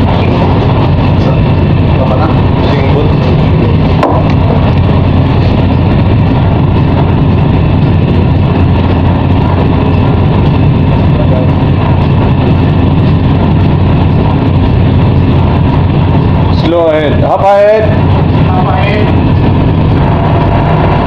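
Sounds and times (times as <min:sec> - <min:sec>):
ship engines droning: 0:00.0 - 0:21.0.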